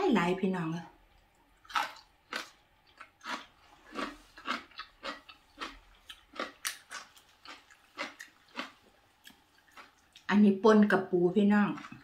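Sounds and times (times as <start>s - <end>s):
person chewing food: 1.1s - 10.3s, 11.7s - 12.0s.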